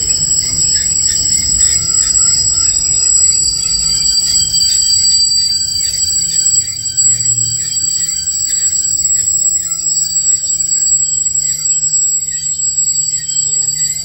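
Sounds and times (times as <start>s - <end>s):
train wagons rumbling past: 0.0s - 9.9s
wheel squeal: 0.0s - 14.0s.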